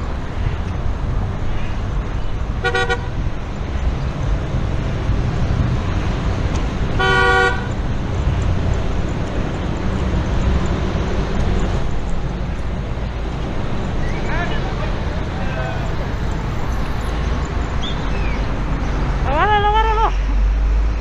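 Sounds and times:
wind and road noise: 0.0 - 21.0
vehicle horn beep: 2.6 - 3.1, 7.0 - 7.8.

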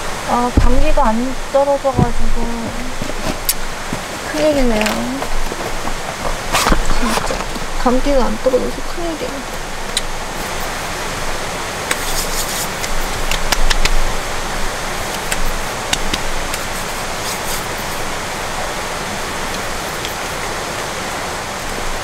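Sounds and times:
rushing water: 0.0 - 22.0
small items clicking and rustling: 2.7 - 7.8.

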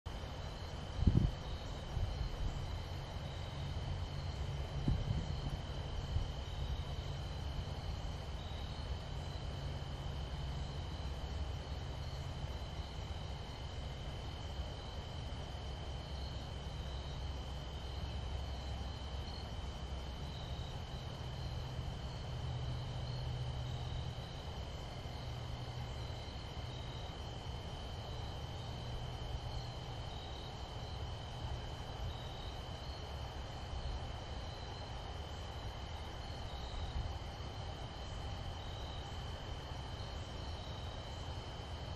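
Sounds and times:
constant low rumble: 0.1 - 41.9
faint pulsing chirp: 0.1 - 41.9
insects trilling: 0.1 - 41.9.

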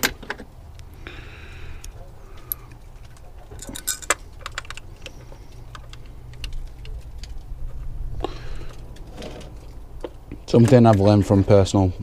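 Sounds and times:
low steady rumble: 0.2 - 10.5
small bolts clinking: 2.4 - 7.5.

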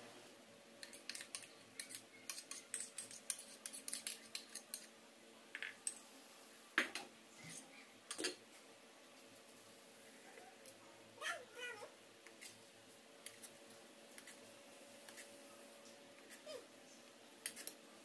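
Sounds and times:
metal utensil scraping a bowl: 0.8 - 4.9.

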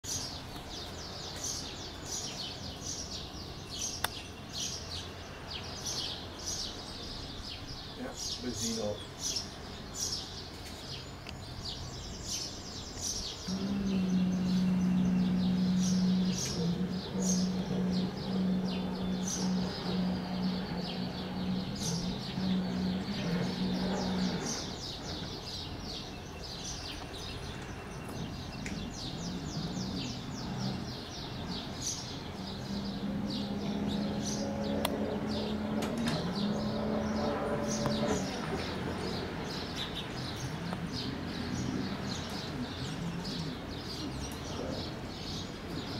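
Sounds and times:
small birds chirping: 0.0 - 45.9
distant jet ski engine hum: 13.1 - 45.9.

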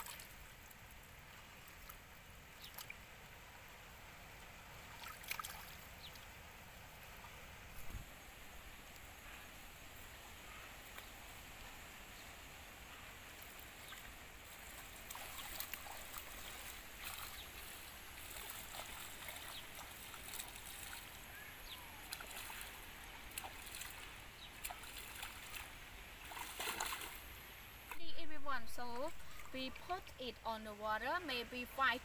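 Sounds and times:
feet wading through water: 4.4 - 6.3, 12.8 - 28.0, 28.8 - 29.9
water splashing by hands: 4.9 - 5.8, 13.4 - 21.2, 22.0 - 27.2.

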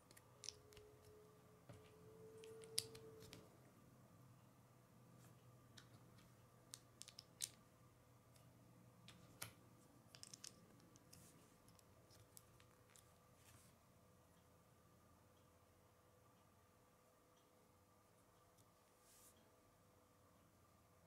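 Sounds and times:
low steady hum: 0.0 - 21.0
plastic pieces clicking and tapping: 6.7 - 7.6, 9.1 - 13.1.

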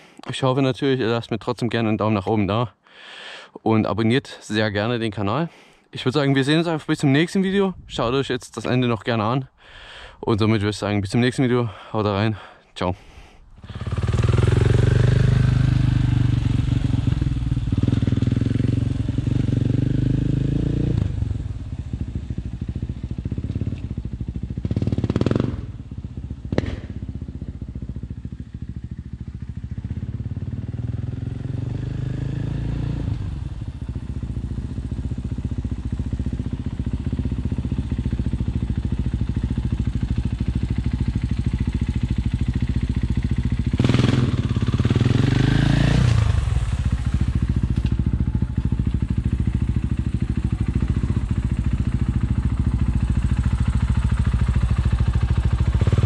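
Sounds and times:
motorcycle engine revving: 13.6 - 56.0.

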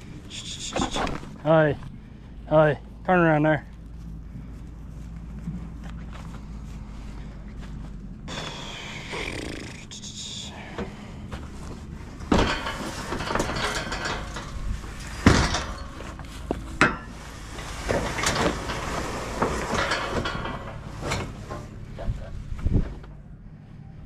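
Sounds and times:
metal frame scraping and rattling: 10.8 - 23.0.

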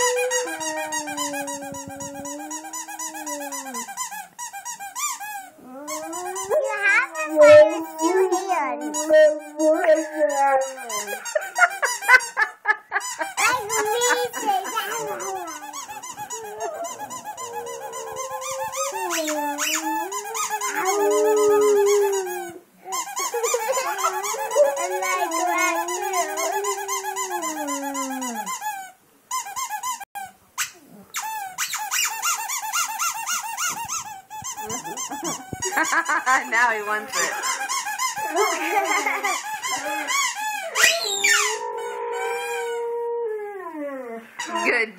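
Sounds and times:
dog howling: 0.0 - 4.0, 5.6 - 11.4, 13.4 - 22.6, 23.2 - 28.5, 38.2 - 44.2
squeaky toy squeaking: 0.0 - 12.4, 13.0 - 41.6, 44.4 - 44.8.

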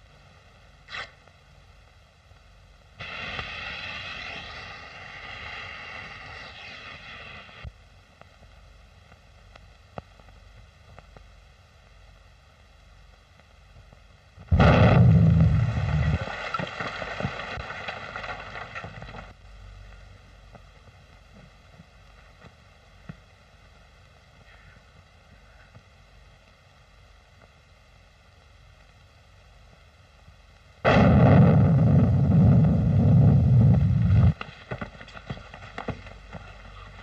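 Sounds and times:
fuse hissing: 3.0 - 7.7
dynamite blast with deep rumble: 3.0 - 7.8, 14.4 - 19.4, 30.8 - 34.4.

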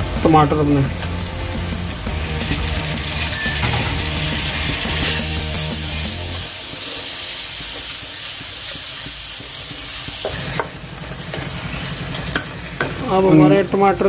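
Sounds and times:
tomatoes sizzling in hot oil: 0.0 - 14.0
spatula stirring in pan: 2.2 - 13.0.

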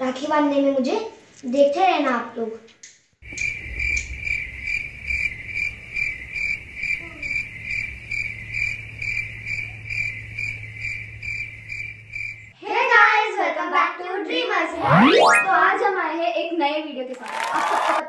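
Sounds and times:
crickets chirping: 3.2 - 12.6.

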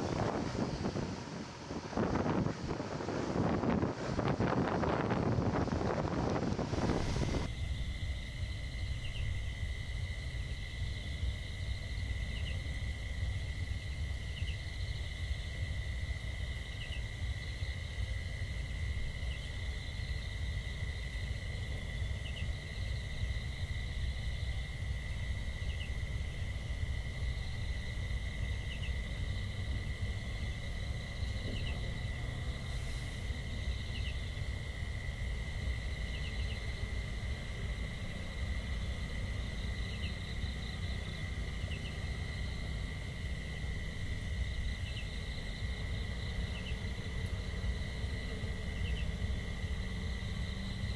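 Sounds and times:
low rumble: 0.0 - 7.7
insect chirps: 0.0 - 50.9
insects trilling: 0.0 - 50.9.

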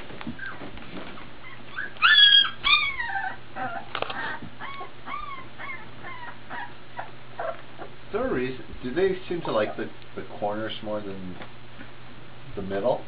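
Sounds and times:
puppies whimpering and whining: 0.2 - 8.0, 9.4 - 9.9
puppy high squeal: 1.2 - 7.9.

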